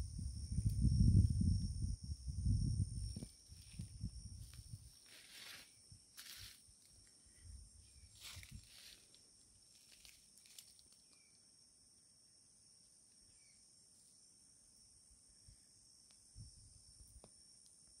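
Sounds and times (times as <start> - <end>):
high-pitched insect drone: 0.0 - 18.0
faint chirps: 10.9 - 11.5, 13.1 - 13.8.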